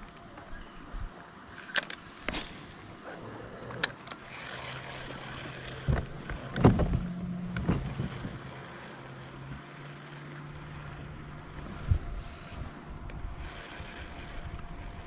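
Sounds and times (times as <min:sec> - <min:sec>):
low steady hum: 0:00.0 - 0:15.0
fishing gear clicking and knocking: 0:01.6 - 0:02.4, 0:03.6 - 0:08.7.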